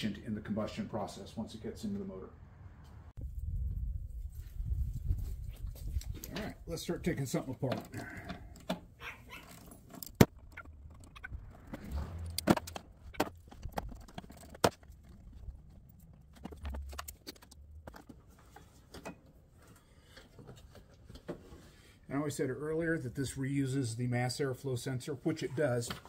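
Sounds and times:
tools and plastic parts clicking: 7.7s - 19.2s.

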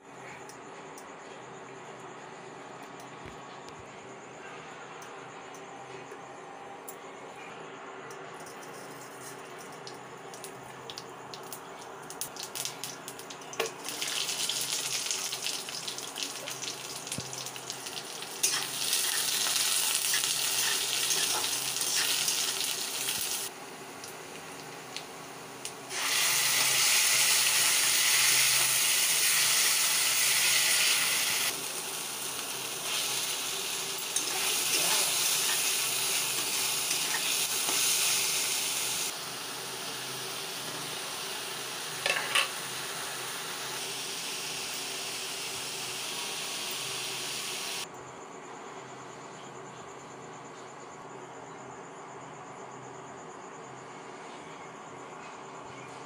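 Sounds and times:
oil and onions sizzling: 8.5s - 47.9s.

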